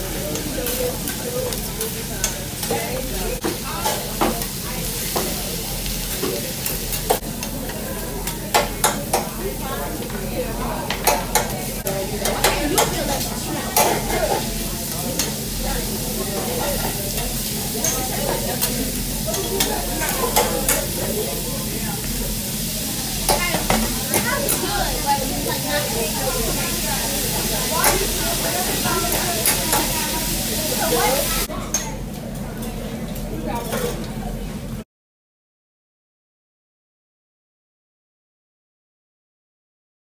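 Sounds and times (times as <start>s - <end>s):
food sizzling on griddle: 0.0s - 31.5s.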